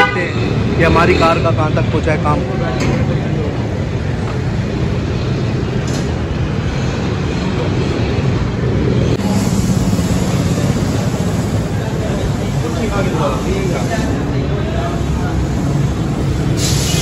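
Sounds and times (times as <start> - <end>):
vehicle engines rumbling: 0.0 - 17.0
hiss: 9.2 - 17.0.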